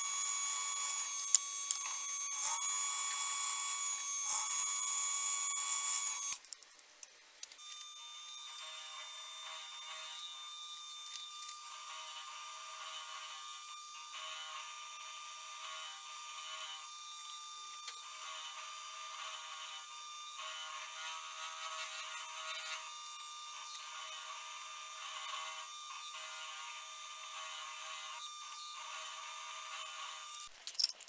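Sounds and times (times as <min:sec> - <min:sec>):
milling machine motor whine: 0:00.0 - 0:06.4.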